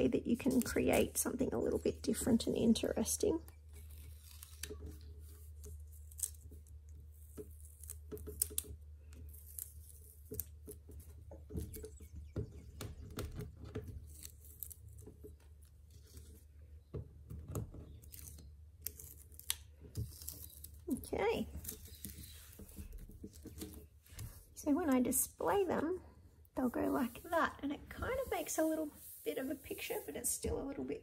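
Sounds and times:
canvases tapping and rustling: 0:21.4 - 0:24.6.

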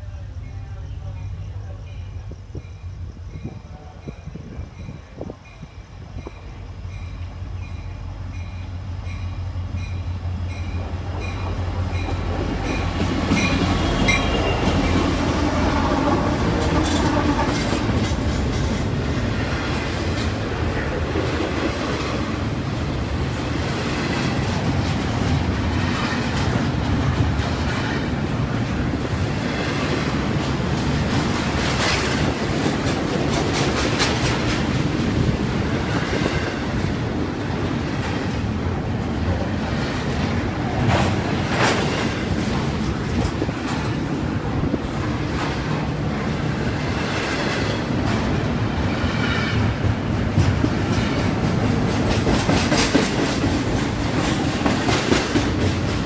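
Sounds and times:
locomotive engines humming: 0:00.0 - 0:56.0
train bell ringing: 0:00.2 - 0:15.0
train wheels clickety-clack: 0:08.4 - 0:56.0.

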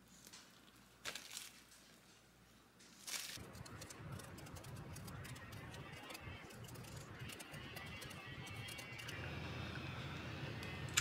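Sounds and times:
paper crinkling: 0:00.1 - 0:02.0, 0:02.9 - 0:07.1
low hum: 0:03.4 - 0:11.0.

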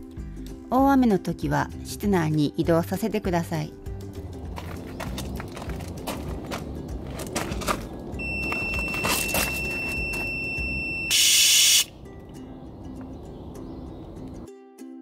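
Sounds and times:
high electronic alarm tone: 0:08.2 - 0:11.9
aerosol spray hiss: 0:11.2 - 0:11.9.

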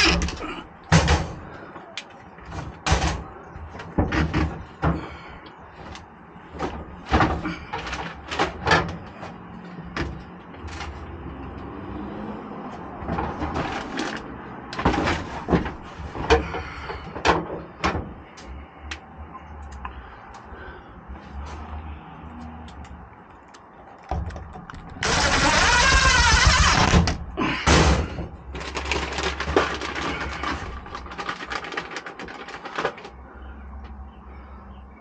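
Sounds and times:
knocks and rattles of hand work: 0:00.0 - 0:11.2, 0:13.0 - 0:19.1, 0:23.9 - 0:33.2.

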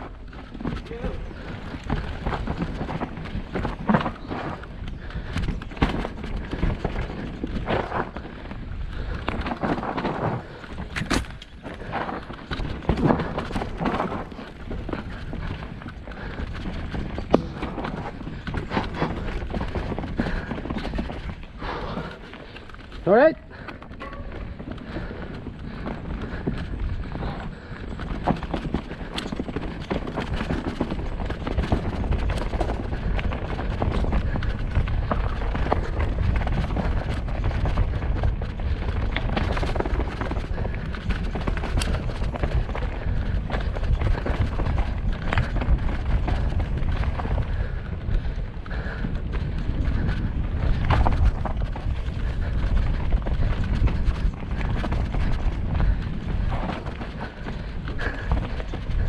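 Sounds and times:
bike rattling and knocking: 0:00.0 - 0:59.0
bike tyres rolling over dirt: 0:00.0 - 0:59.0
wind on microphone: 0:24.0 - 0:59.0.

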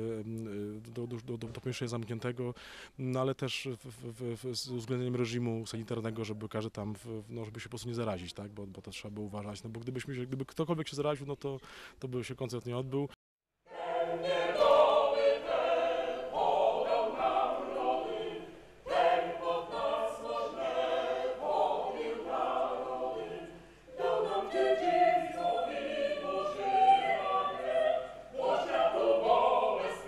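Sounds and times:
choir singing: 0:13.7 - 0:30.0.

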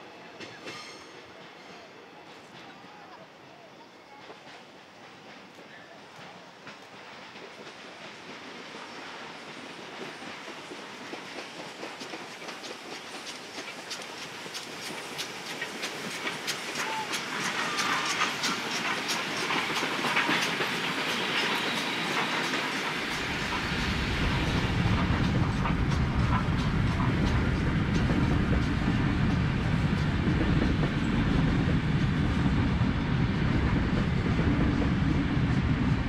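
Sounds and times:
steam locomotive exhaust beats: 0:04.1 - 0:36.0.

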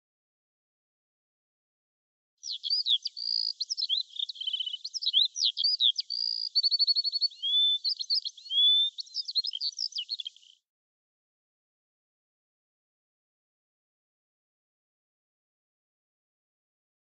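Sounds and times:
songbird singing: 0:02.4 - 0:10.6.

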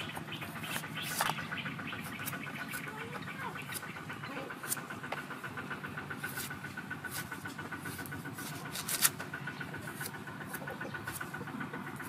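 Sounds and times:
fast-pulsing drone: 0:00.0 - 0:12.0
cleaver scraping taro skin: 0:00.6 - 0:01.4, 0:03.6 - 0:04.9, 0:06.2 - 0:12.0.

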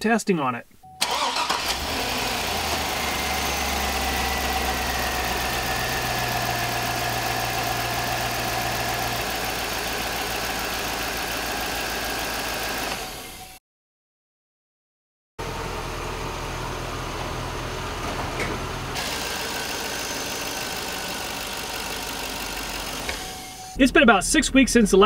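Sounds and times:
engine idling: 0:01.0 - 0:13.0, 0:18.6 - 0:23.7.

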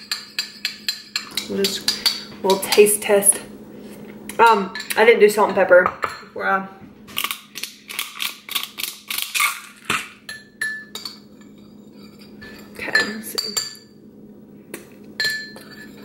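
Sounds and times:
spice grinder crunching clicks: 0:07.2 - 0:09.7
spoon clinking ceramic bowl: 0:10.3 - 0:13.9, 0:15.2 - 0:16.0.

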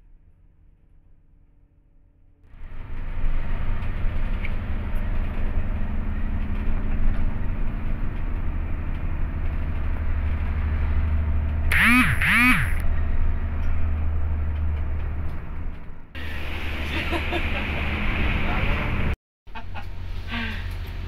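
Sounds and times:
bus engine and road rumble: 0:00.0 - 0:21.0
horn blasts: 0:11.7 - 0:12.8.

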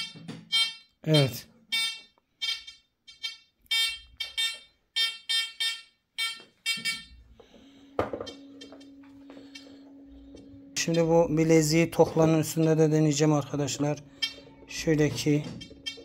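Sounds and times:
faint steady hum: 0:06.8 - 0:16.0.

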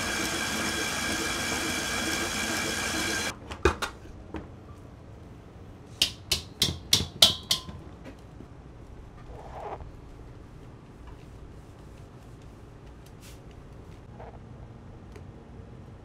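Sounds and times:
stand mixer motor running: 0:00.0 - 0:03.3.

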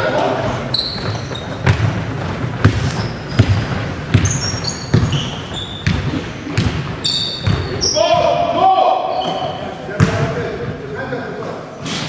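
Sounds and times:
sneakers squeaking: 0:00.0 - 0:10.8
basketball bouncing on wooden floor: 0:00.9 - 0:08.3.

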